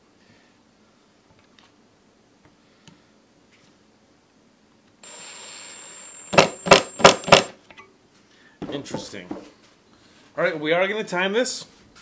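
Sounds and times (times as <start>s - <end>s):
impact driver motor whine: 5.0s - 7.6s
impact driver hammering: 6.3s - 7.6s.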